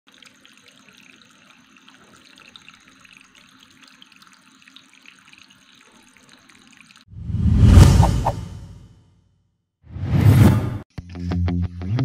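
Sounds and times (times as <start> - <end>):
fountain water trickling: 0.1 - 7.1.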